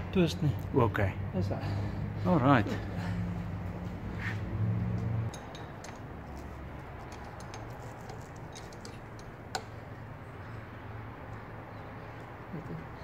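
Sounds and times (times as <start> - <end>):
hands clicking and tapping parts: 5.3 - 9.8.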